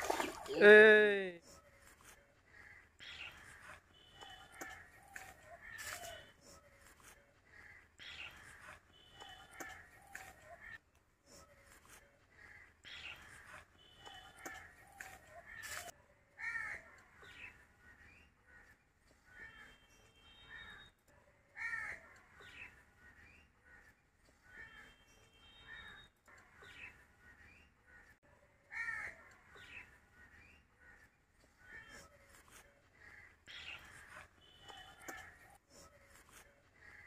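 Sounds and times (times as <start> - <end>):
crows cawing: 16.4 - 16.8, 21.6 - 22.1, 28.7 - 29.3.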